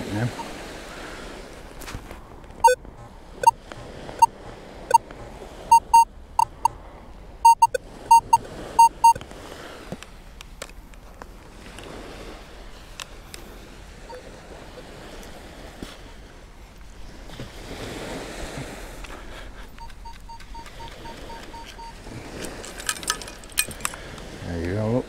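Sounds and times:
metal detector beeps: 0.2 - 0.6, 2.6 - 6.8, 7.4 - 9.2, 19.7 - 22.0.

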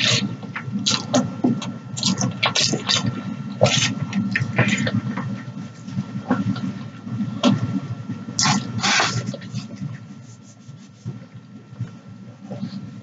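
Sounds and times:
mouth chewing noodles: 8.4 - 9.7.

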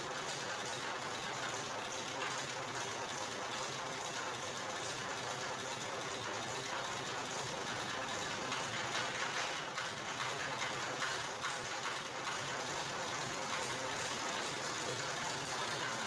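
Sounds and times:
juice press rollers rattling: 7.4 - 16.0.

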